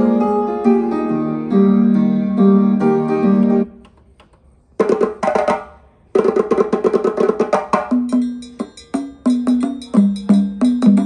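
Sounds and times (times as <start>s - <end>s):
woody percussive rhythm: 4.8s - 11.0s
music from boombox speakers: 7.9s - 11.0s.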